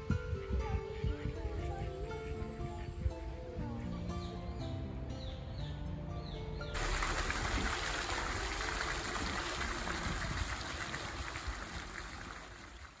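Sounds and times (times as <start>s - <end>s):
fountain water splashing: 6.8s - 13.0s.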